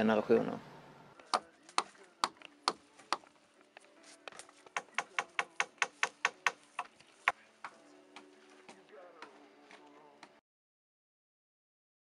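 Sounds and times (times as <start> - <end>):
hammer tapping on wood: 4.6 - 9.4.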